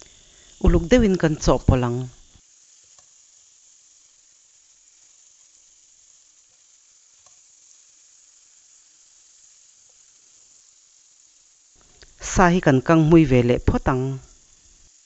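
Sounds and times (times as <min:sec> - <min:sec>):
food sizzling in a pan: 0:00.0 - 0:15.0
spatula ticks: 0:02.5 - 0:12.2.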